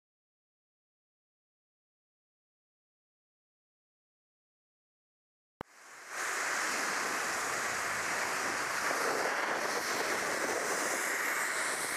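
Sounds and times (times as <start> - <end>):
snow guns hissing: 5.7 - 11.9.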